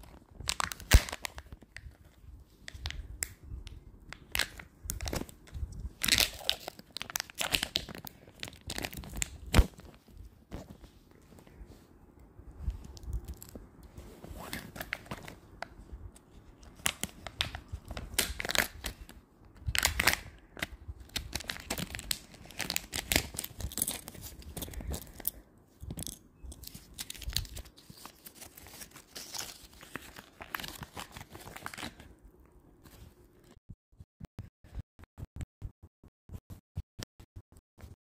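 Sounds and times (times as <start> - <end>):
wrapper crinkling: 0.0 - 2.1, 4.2 - 10.0, 16.7 - 32.1
seals tearing off plastic: 0.4 - 1.6.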